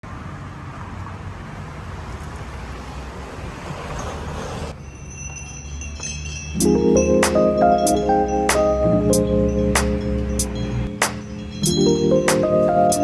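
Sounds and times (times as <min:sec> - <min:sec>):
road traffic hiss and rumble: 0:00.0 - 0:13.0
marimba-like music: 0:05.7 - 0:13.0.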